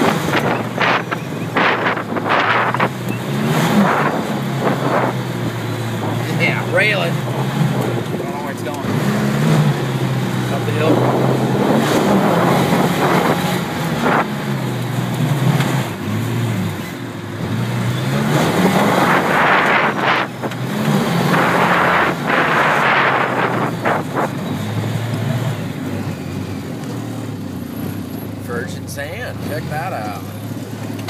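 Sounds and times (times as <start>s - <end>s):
bursts of rushing noise: 0.0s - 16.0s, 17.7s - 25.8s
off-road vehicle engine: 0.0s - 31.0s.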